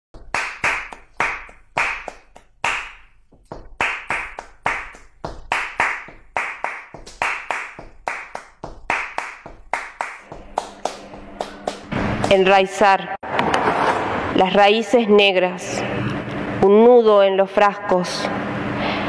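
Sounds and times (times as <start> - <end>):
sharp taps: 0.2 - 12.4
rhythmic hand-clapping: 0.2 - 12.5.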